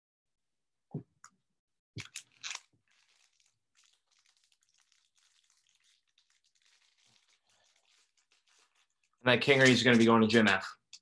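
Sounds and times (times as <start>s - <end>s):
foil wrapper crinkling: 2.0s - 10.1s.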